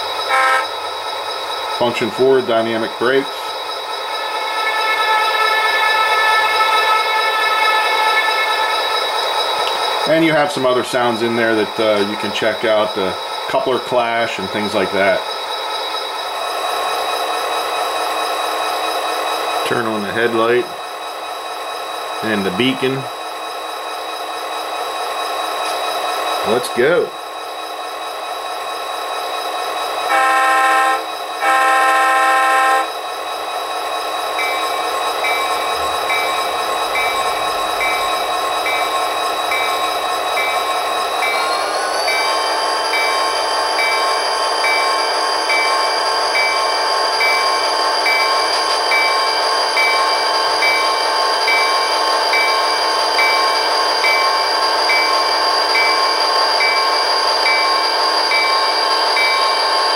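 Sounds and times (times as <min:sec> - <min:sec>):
model locomotive diesel engine: 0:00.0 - 0:59.9
locomotive horn blasts: 0:00.3 - 0:00.7, 0:30.1 - 0:32.9.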